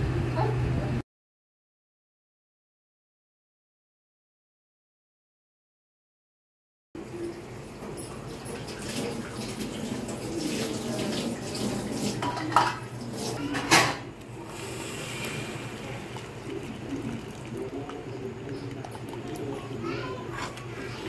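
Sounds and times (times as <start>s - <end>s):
metal utensils clattering on a pot: 12.1s - 14.1s
water sloshing: 14.3s - 21.0s.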